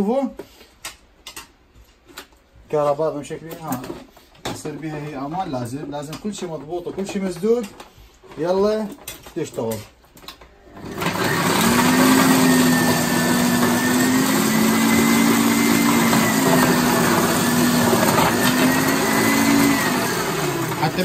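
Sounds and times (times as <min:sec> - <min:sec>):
kitchen machine motor whirring: 0:10.6 - 0:21.0.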